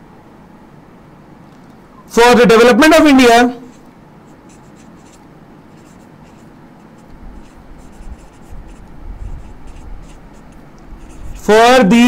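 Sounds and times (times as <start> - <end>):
marker pen scratching on board: 3.7 - 11.5.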